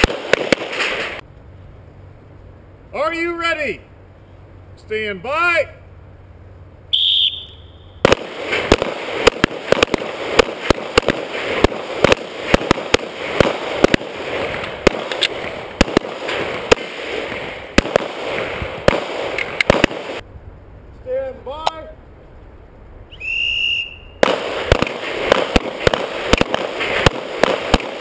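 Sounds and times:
rapid pistol fire: 0:00.0 - 0:01.2, 0:08.0 - 0:20.2, 0:24.2 - 0:28.0.

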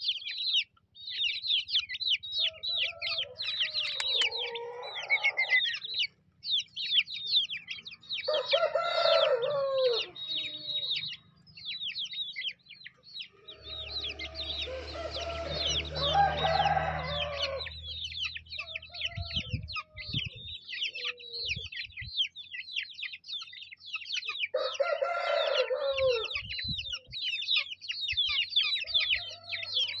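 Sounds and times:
chicks peeping: 0:00.0 - 0:30.0
chicken calling: 0:01.8 - 0:06.2, 0:07.7 - 0:21.8.

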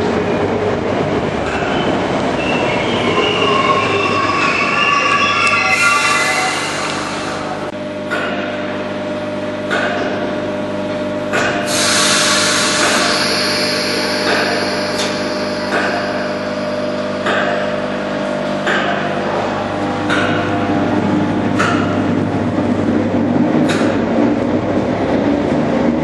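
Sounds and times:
train equipment humming: 0:00.0 - 0:25.6
air hiss: 0:11.7 - 0:15.5.

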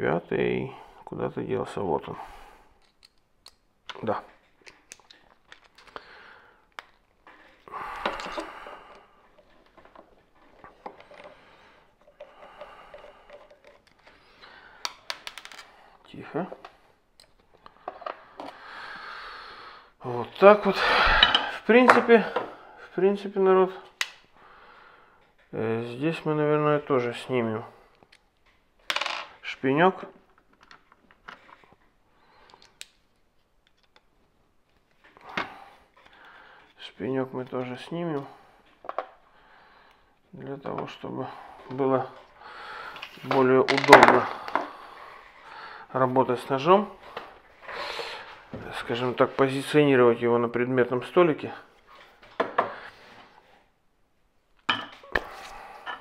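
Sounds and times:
light clicks and taps of tools: 0:02.8 - 0:06.0, 0:32.5 - 0:34.1.

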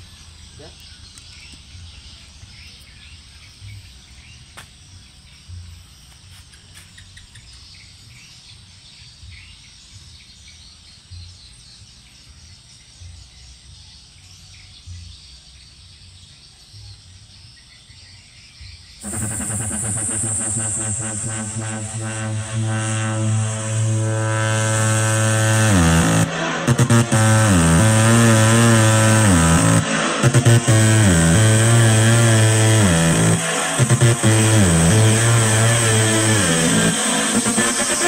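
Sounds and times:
insects chirping: 0:00.0 - 0:25.2
loud electronic music: 0:19.0 - 0:38.0
low rumble: 0:19.0 - 0:38.0.

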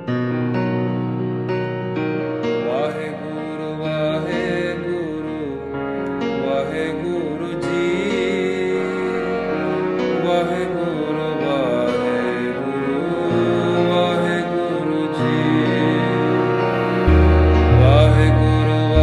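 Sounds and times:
slow background music: 0:00.6 - 0:19.0
deep bass note: 0:17.1 - 0:19.0.

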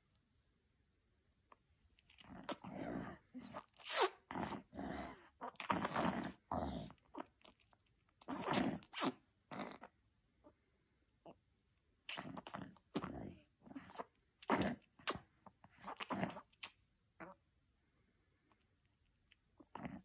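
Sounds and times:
baby sucking on a pacifier: 0:02.0 - 0:07.4, 0:08.2 - 0:09.9, 0:12.1 - 0:13.2, 0:13.8 - 0:17.4.

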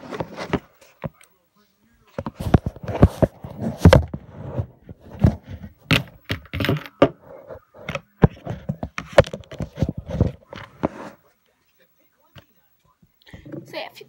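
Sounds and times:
objects handled against microphone: 0:00.0 - 0:01.3, 0:02.0 - 0:11.3.

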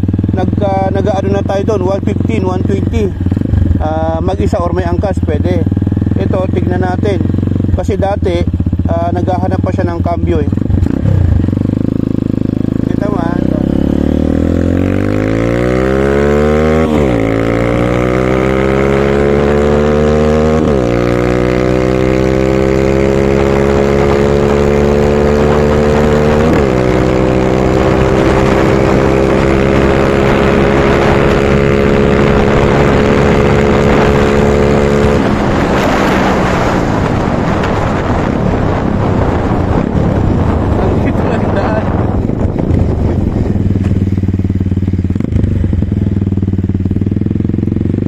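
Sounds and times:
dirt bike engine revving: 0:00.0 - 0:48.0
wind rushing noise: 0:10.4 - 0:48.0.

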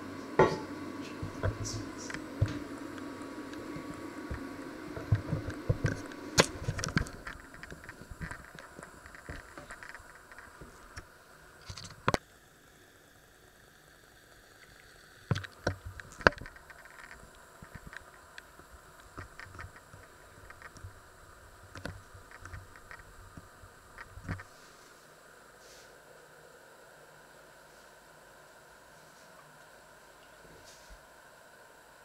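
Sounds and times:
faint low background hum: 0:00.0 - 0:32.0
small clicks and knocks of objects: 0:05.0 - 0:12.2, 0:15.3 - 0:21.0, 0:21.7 - 0:24.5.

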